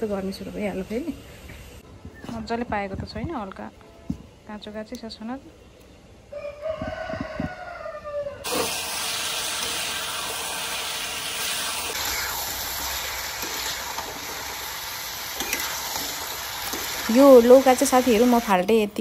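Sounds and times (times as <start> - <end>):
rooster crowing: 6.3 - 8.5
vegetables sizzling in oil: 8.5 - 19.0.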